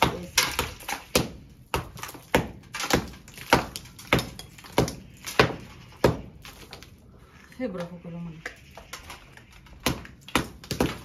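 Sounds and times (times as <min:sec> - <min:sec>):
hammer knocking plaster off wall: 0:00.0 - 0:06.8, 0:09.8 - 0:11.0.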